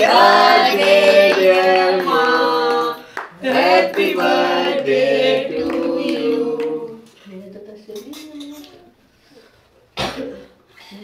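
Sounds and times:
voices singing together: 0.0 - 7.2.

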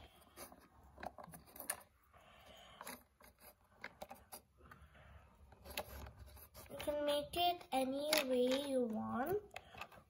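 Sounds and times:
plastic bricks clicking and rattling: 7.8 - 10.0.

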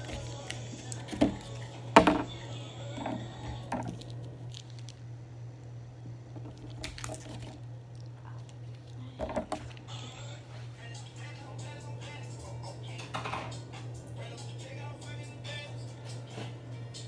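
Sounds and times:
steady low hum: 0.0 - 17.0
plastic bag crinkling: 3.6 - 5.0, 6.4 - 9.8.

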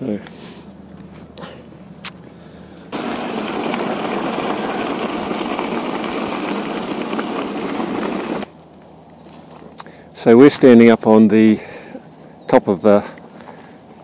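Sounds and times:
engine-like mechanical running noise: 2.7 - 8.8.

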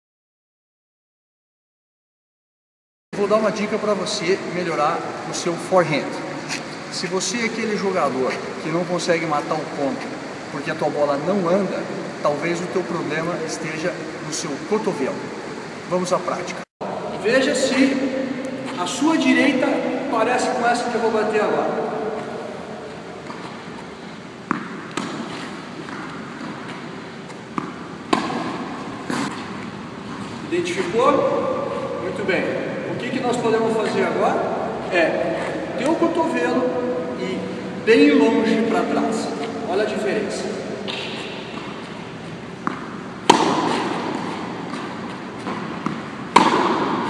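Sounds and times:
tennis ball bouncing: 21.8 - 32.0, 40.5 - 47.0
racket hitting tennis ball: 21.8 - 32.7, 40.5 - 47.0.

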